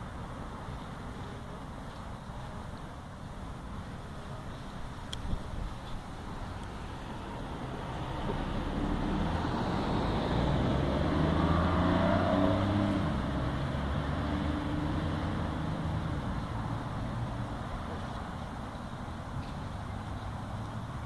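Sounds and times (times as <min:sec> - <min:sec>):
vehicle driving past: 0:06.8 - 0:17.6.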